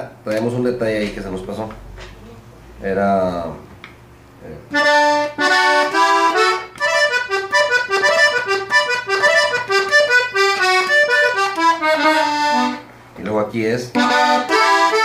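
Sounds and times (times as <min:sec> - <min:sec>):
button accordion playing: 0:04.7 - 0:12.9, 0:13.9 - 0:15.0.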